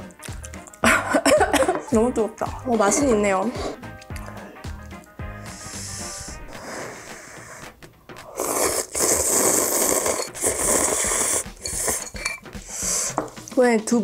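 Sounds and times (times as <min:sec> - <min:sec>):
person slurping noodles: 0:05.4 - 0:13.2
short breaths: 0:12.6 - 0:13.2.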